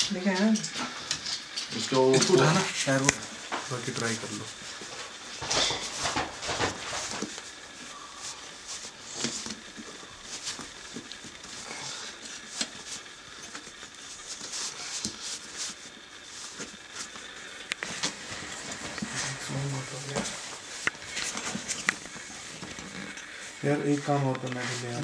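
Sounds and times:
rubber rubbing and scuffing: 3.4 - 7.8, 14.0 - 23.2, 24.0 - 25.0.

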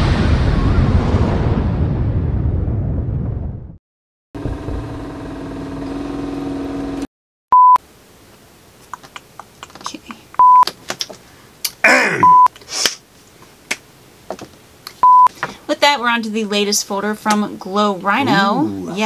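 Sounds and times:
loud bleep tones: 12.2 - 12.5.

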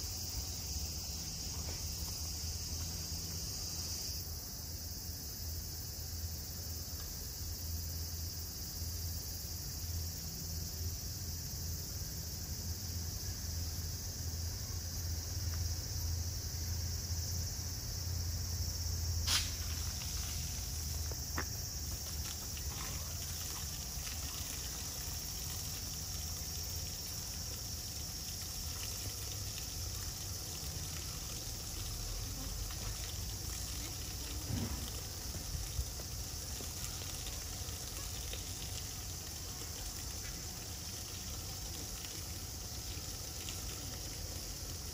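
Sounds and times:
hose spraying water: 0.0 - 4.2, 19.2 - 44.9
high hiss: 0.0 - 44.9.

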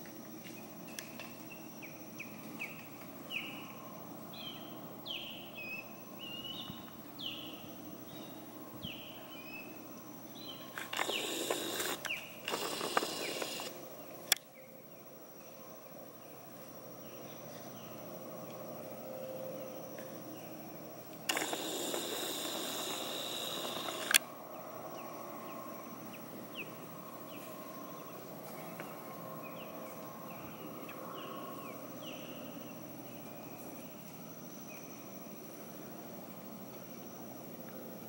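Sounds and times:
insect drone: 0.0 - 38.0
sharp click: 21.3 - 24.2.

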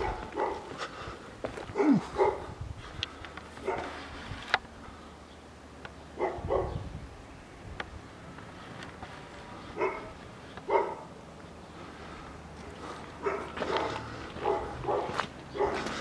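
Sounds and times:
dog barking: 0.0 - 0.8, 1.7 - 2.6, 3.6 - 4.0, 6.2 - 6.8, 9.8 - 11.1, 13.2 - 16.0.

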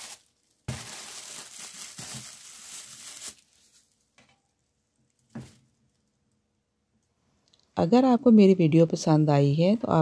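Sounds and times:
plastic bag crinkling: 0.0 - 4.1.

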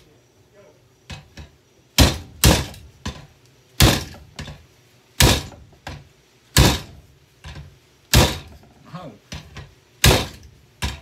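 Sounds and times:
heavy blows smashing vacuum cleaner: 5.2 - 8.6, 9.4 - 11.0.

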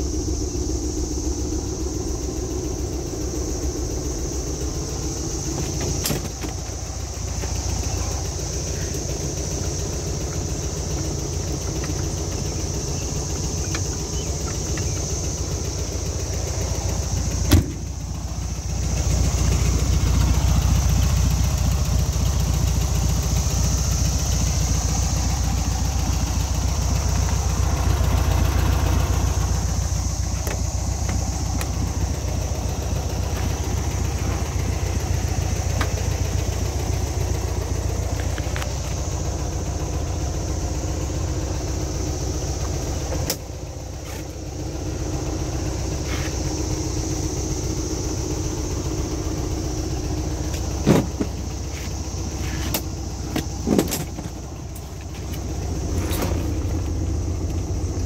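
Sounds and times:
car engine idling: 0.0 - 58.0.

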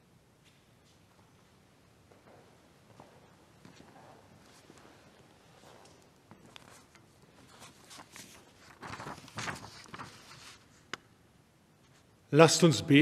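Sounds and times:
rustling and shuffling: 2.1 - 11.0.

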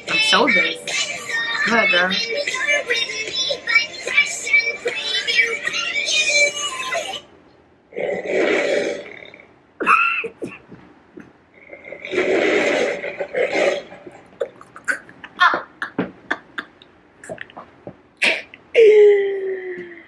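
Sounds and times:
woman laughing: 14.4 - 17.5.

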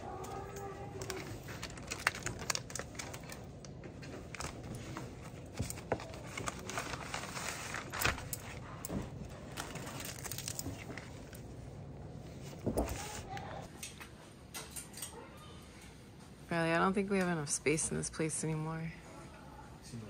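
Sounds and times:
paper crinkling and rustling: 0.0 - 11.6, 12.2 - 13.7.

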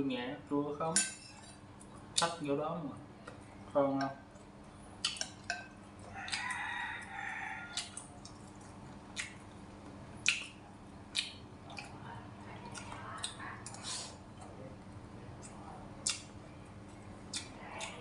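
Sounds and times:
rooster crowing: 6.1 - 8.0.

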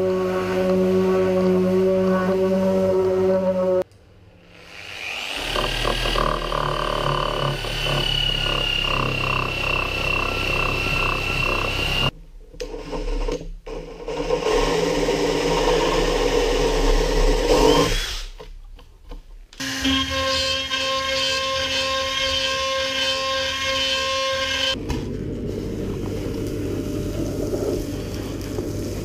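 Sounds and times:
cordless drill boring wood: 4.5 - 12.1, 12.9 - 18.4.

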